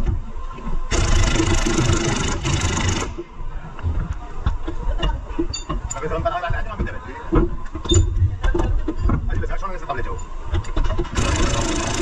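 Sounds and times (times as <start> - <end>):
power tool running: 0.9 - 3.2, 11.2 - 12.0.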